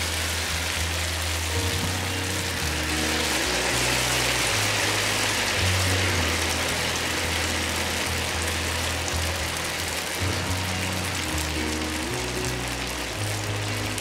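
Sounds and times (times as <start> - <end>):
background music with bass: 0.0 - 14.0
hot oil sizzling: 0.0 - 14.0.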